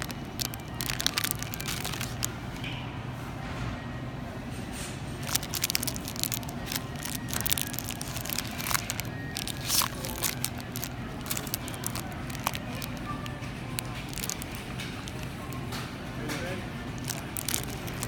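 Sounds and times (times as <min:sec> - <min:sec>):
cellophane wrapping crinkling: 0:00.0 - 0:02.6, 0:05.2 - 0:15.7, 0:16.9 - 0:18.0.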